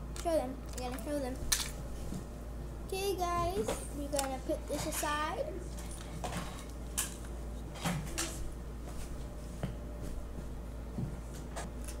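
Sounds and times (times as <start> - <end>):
low steady hum: 0.0 - 12.0
toy items clicking and rustling: 4.1 - 5.1.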